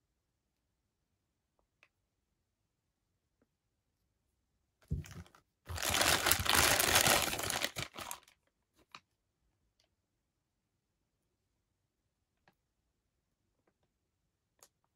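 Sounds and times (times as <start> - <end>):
plastic bag crinkling: 4.9 - 8.4.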